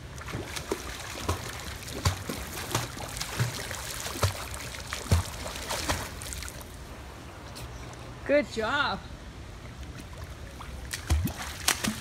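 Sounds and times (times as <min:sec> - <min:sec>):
child swimming splashes: 0:00.0 - 0:06.7, 0:10.1 - 0:12.0
water washing: 0:00.0 - 0:06.8.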